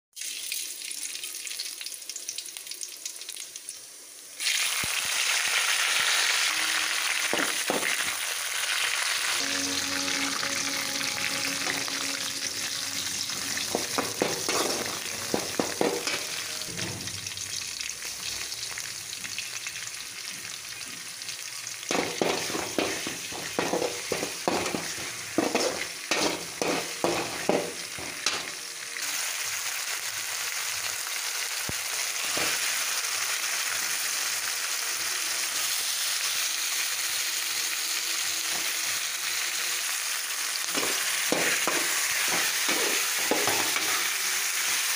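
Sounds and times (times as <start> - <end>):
spices sizzling in hot oil: 0.2 - 44.9
metal spoon scraping pan: 10.3 - 17.0, 21.9 - 28.6, 40.7 - 44.2.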